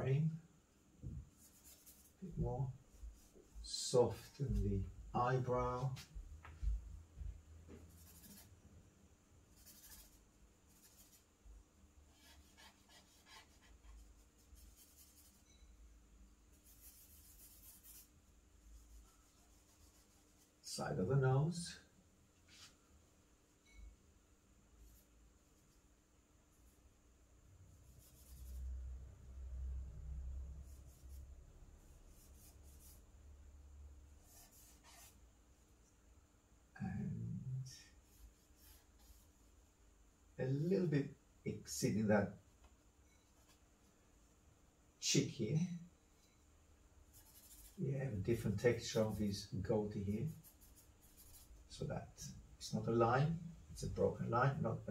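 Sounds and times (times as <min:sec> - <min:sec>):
charcoal scratching on paper: 0:01.4 - 0:02.2, 0:07.9 - 0:08.6, 0:09.5 - 0:11.3, 0:12.1 - 0:15.6, 0:16.5 - 0:20.6, 0:27.9 - 0:28.8, 0:30.6 - 0:33.0, 0:34.2 - 0:35.2, 0:38.0 - 0:39.5, 0:47.1 - 0:47.8, 0:50.2 - 0:51.8.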